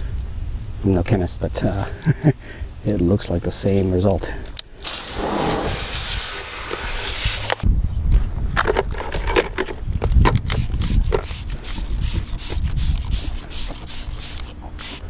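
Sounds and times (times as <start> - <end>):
short spray bursts: 4.8 - 7.6, 10.5 - 15.0
water spray hissing on wheel: 4.8 - 7.6, 10.6 - 15.0.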